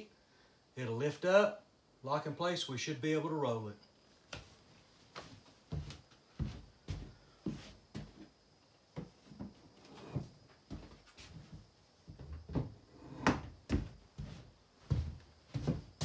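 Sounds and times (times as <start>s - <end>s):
boot steps on plywood floor: 5.2s - 8.3s, 9.0s - 12.8s, 13.4s - 16.0s.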